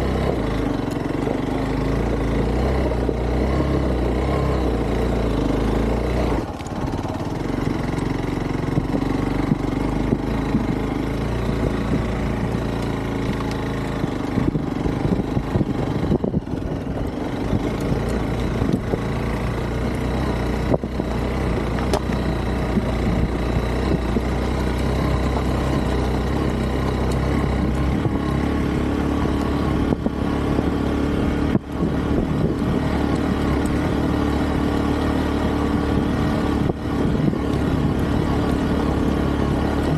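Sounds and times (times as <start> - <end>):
knocks of bike over stones: 21.6 - 22.9.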